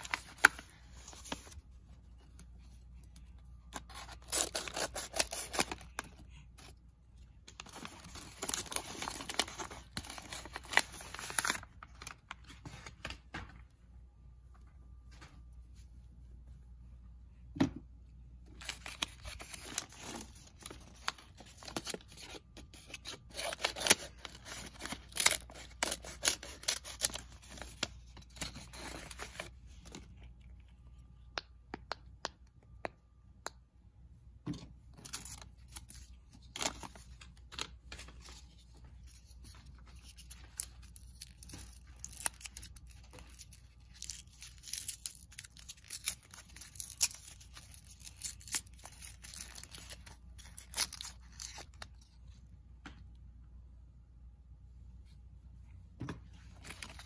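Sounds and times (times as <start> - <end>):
paper crinkling and tearing: 0.0 - 1.7, 3.6 - 6.8, 7.5 - 13.2, 18.5 - 30.4, 35.0 - 52.2.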